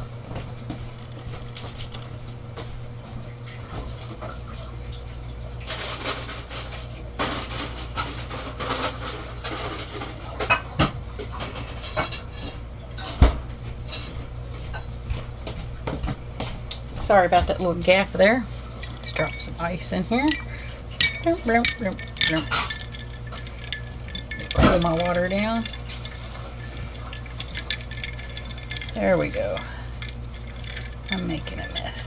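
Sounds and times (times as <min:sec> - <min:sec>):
steady low hum: 0:00.0 - 0:32.0
household clatter: 0:05.7 - 0:13.3, 0:17.4 - 0:32.0.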